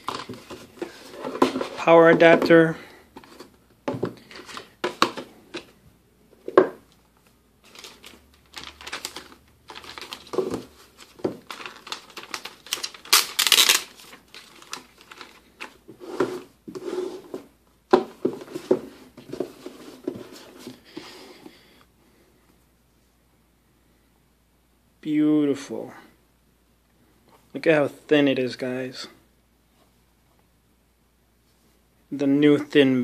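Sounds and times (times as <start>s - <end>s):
plastic sheet crinkling: 7.6s - 15.8s.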